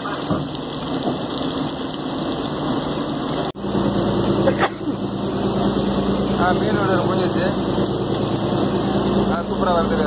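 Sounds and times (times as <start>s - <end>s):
fish sizzling in hot oil: 0.0s - 10.0s
low engine hum: 3.0s - 10.0s.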